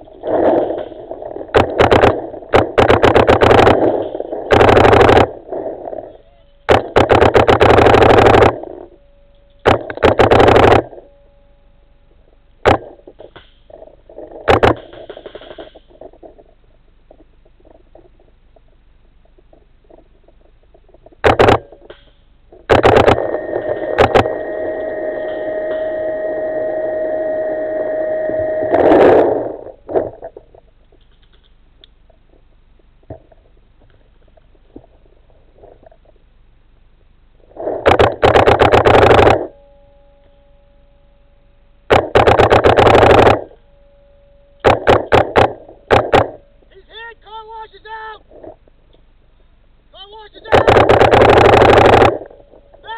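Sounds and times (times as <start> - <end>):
paintball marker firing: 21.2 - 21.9, 41.9 - 43.4, 44.6 - 46.4
steady high tone: 22.8 - 29.8, 39.1 - 41.7.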